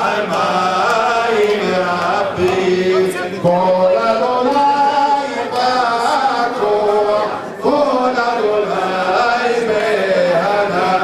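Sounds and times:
man chanting into microphone: 0.0s - 11.0s.

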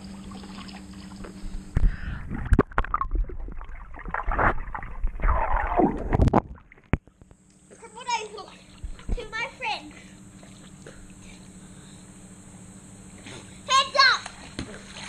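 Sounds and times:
steady hum: 0.0s - 15.0s
underwater gurgling bubbles: 2.3s - 7.0s.

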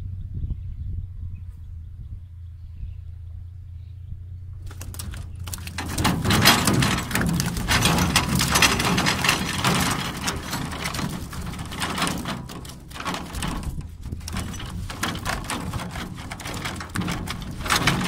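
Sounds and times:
fish flopping against boat: 4.7s - 18.0s.

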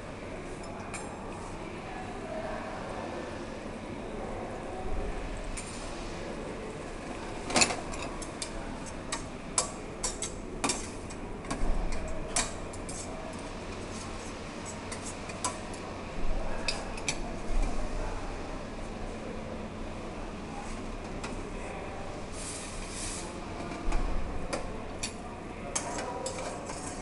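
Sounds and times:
cutlery clinking on metal and china: 25.8s - 27.0s.

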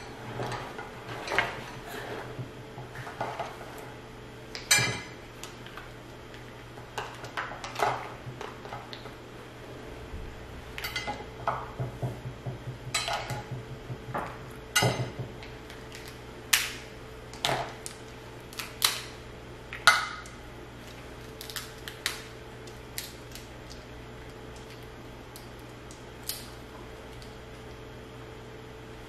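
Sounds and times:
steady low hum: 0.0s - 29.0s
crab shells cracking: 15.6s - 27.4s.

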